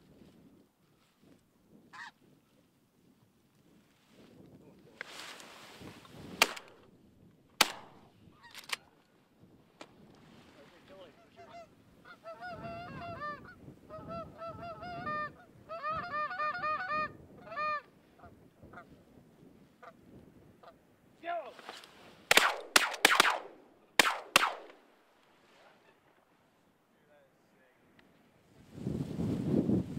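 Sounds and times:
shotgun shots: 6.4s - 6.8s, 7.6s - 8.0s, 22.3s - 24.8s
geese honking: 11.2s - 18.3s.

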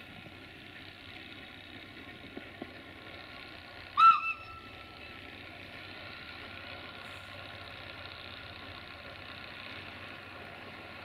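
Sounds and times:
diesel locomotives running: 0.0s - 11.0s
locomotive air whistle: 4.0s - 4.8s.

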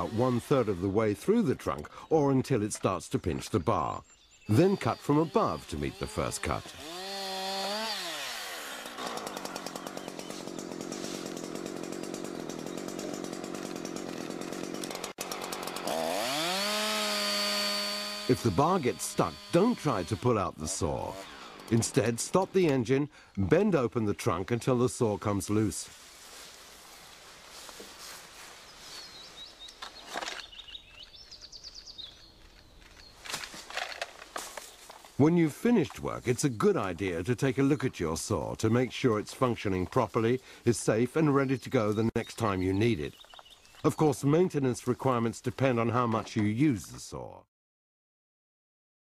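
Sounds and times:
chainsaw revving: 0.0s - 1.3s, 4.5s - 22.8s
rustle in dry leaves: 10.2s - 11.6s, 25.8s - 30.5s, 32.4s - 35.2s
small bird chirping: 28.7s - 33.2s, 43.0s - 43.9s.

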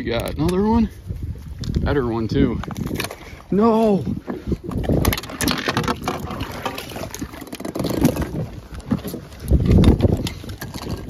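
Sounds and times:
fishing reel clicks and rustling: 4.6s - 11.0s.

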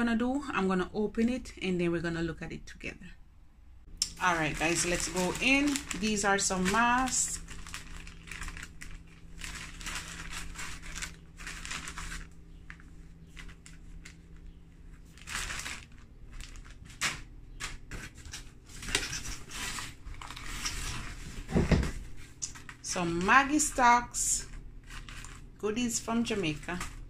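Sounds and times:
plastic bags crinkling: 4.0s - 27.0s
hands rummaging in cardboard box: 4.4s - 24.0s.

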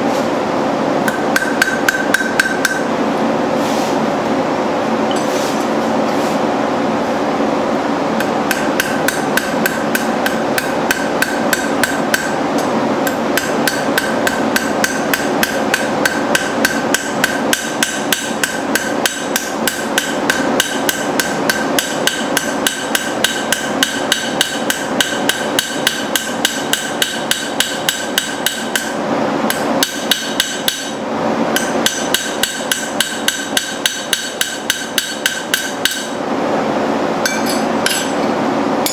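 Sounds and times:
steady shop hum: 0.0s - 38.9s
hammer tapping on an anvil: 1.0s - 2.9s, 8.2s - 31.0s, 31.6s - 36.2s, 37.2s - 38.2s.

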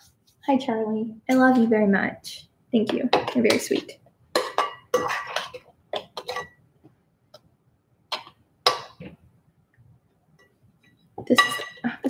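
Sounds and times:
person speaking: 0.0s - 4.0s.

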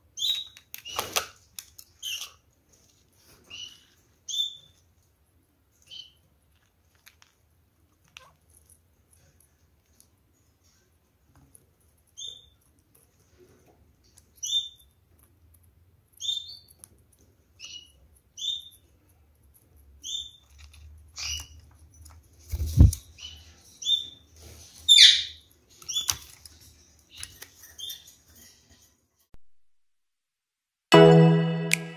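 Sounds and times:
birds rustling in cage: 20.4s - 29.0s
parakeets chirping: 24.9s - 26.2s.

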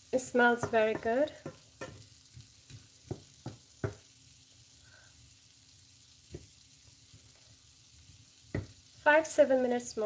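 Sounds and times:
vegetables sizzling: 0.0s - 10.0s
wooden spatula knocking on pan: 0.6s - 4.1s, 6.3s - 6.5s, 8.5s - 8.8s.

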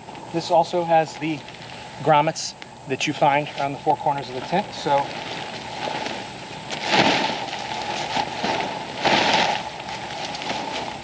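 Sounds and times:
tent fabric rustling: 4.4s - 11.0s.

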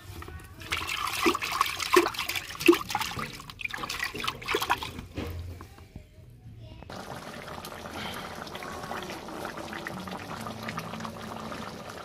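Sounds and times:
water sloshing in a bucket: 0.0s - 5.5s.

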